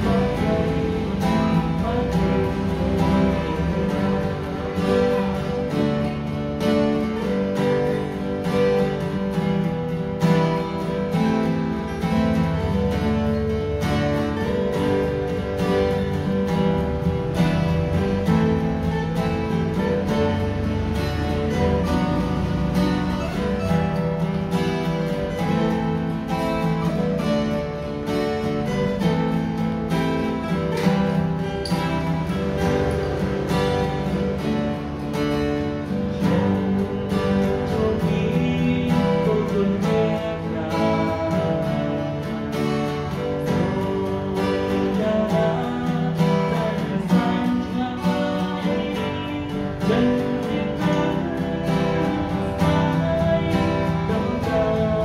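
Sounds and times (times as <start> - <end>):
acoustic guitars strumming: 0.0 - 55.0.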